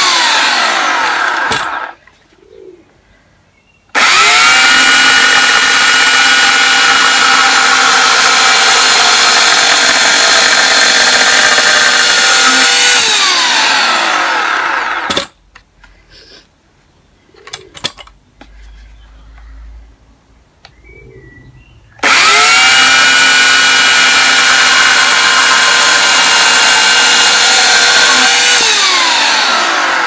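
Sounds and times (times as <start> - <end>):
chainsaw running and winding down: 0.0 - 2.0, 4.0 - 15.3, 22.0 - 30.0.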